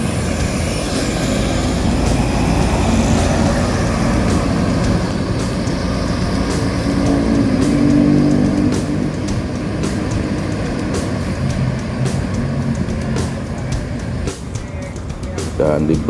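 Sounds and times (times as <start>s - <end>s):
bus diesel engine rumbling: 0.0s - 16.0s.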